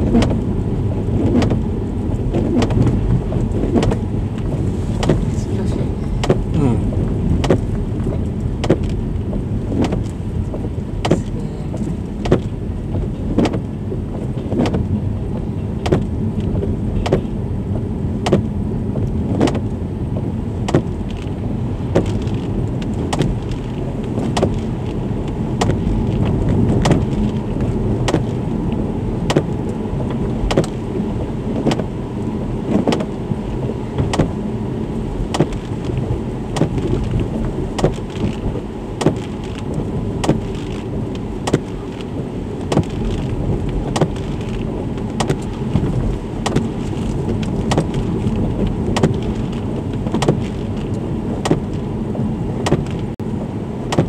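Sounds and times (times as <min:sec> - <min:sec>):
car engine and tyres rumbling: 0:00.0 - 0:54.0.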